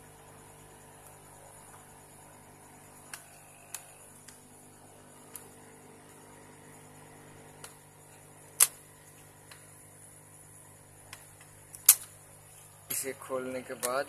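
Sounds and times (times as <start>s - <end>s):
plastic clips snapping: 11.8s - 12.1s.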